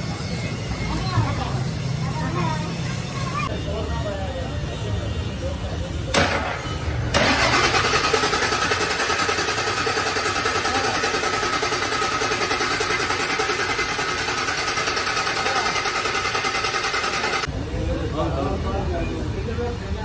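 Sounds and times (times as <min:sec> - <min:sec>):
diesel engine idling: 0:04.4 - 0:17.5.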